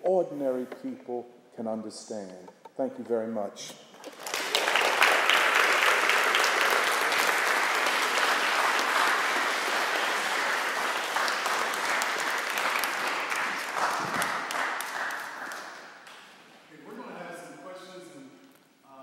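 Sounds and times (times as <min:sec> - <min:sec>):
audience applauding: 0:04.0 - 0:16.4.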